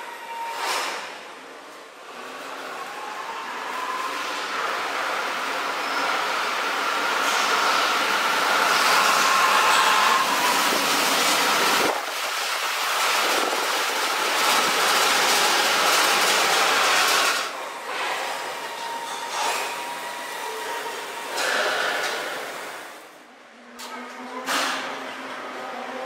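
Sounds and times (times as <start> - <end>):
faint train whine: 0.0 - 12.0
train rushing noise: 0.0 - 23.1.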